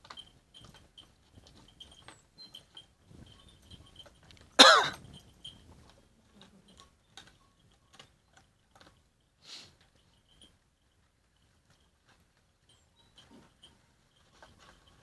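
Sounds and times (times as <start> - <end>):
dogs chewing and lapping: 0.0 - 9.2
short cough: 4.6 - 5.0.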